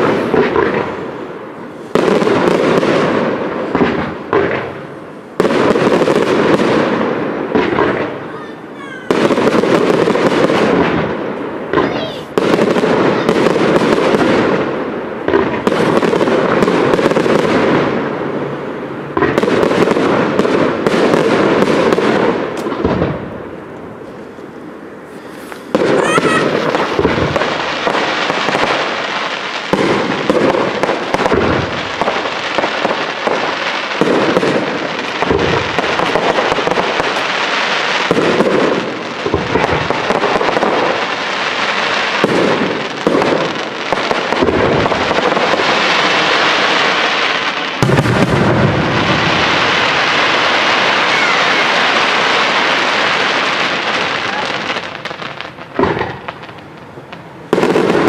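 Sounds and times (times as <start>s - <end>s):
firework crackling: 0.0s - 58.0s
firework shells bursting: 19.1s - 58.0s.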